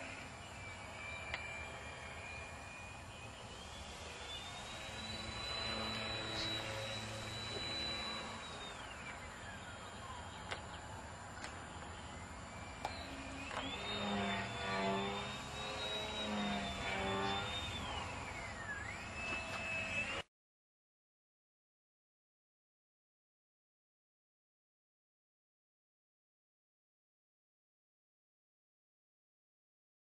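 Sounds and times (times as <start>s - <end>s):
model aircraft motor whining: 0.0s - 20.2s.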